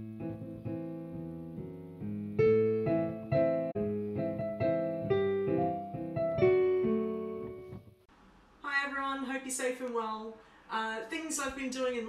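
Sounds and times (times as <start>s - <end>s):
slow piano melody: 0.0s - 8.1s.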